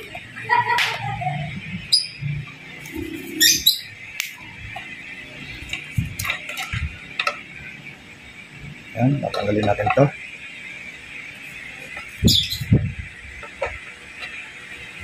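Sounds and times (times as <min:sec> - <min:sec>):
bird chirping: 0:01.4 - 0:04.9, 0:12.1 - 0:12.9.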